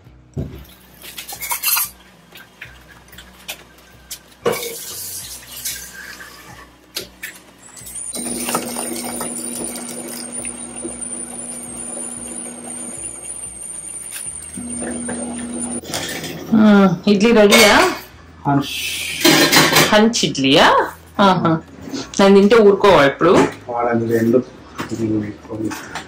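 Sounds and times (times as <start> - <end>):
liquid pouring into pot: 8.1 - 15.8.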